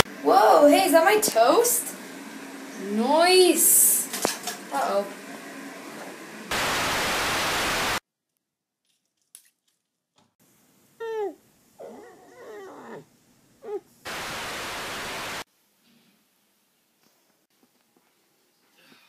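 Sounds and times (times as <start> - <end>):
tv static white noise: 0.0 - 8.0, 14.0 - 15.5.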